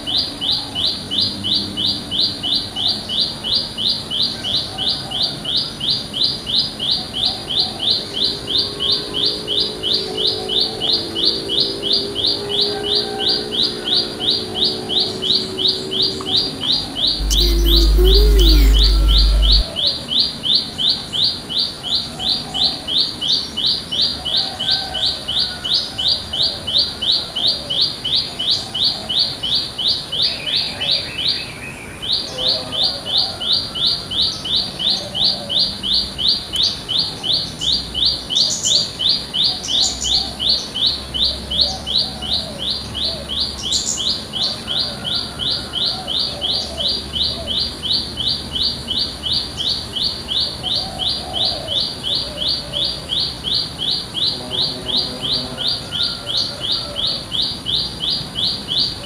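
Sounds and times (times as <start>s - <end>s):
bird calling sharp high notes: 17.2s - 19.6s.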